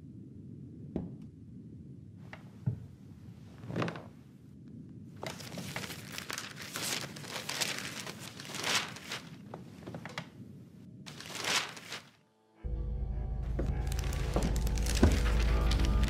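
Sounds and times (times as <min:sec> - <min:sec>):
newspaper rustling: 0:05.2 - 0:10.3, 0:11.1 - 0:12.2, 0:13.8 - 0:16.0.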